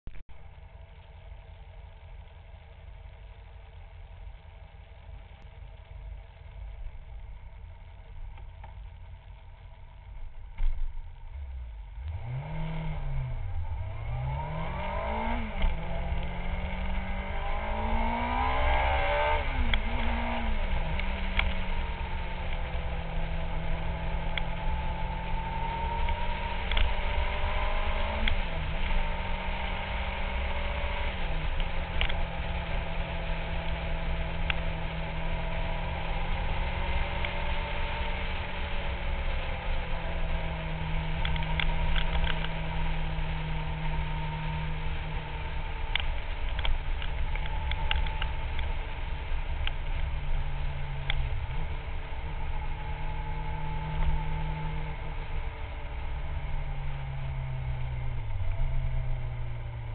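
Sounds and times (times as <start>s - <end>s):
motorcycle engine accelerating: 0.1s - 59.9s.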